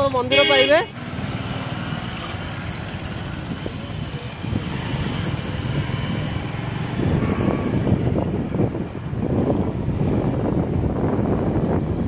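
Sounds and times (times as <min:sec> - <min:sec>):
road and wind noise: 0:00.0 - 0:12.0
motorcycle engine running: 0:01.6 - 0:12.0.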